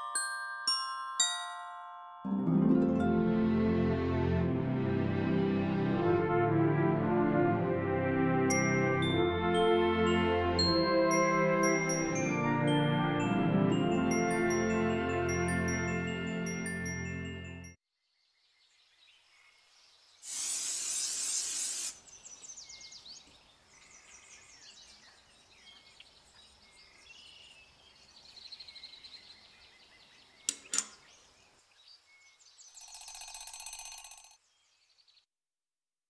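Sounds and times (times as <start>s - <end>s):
sharp clicks: 30.5s - 31.0s
short ringing tone: 32.8s - 34.4s.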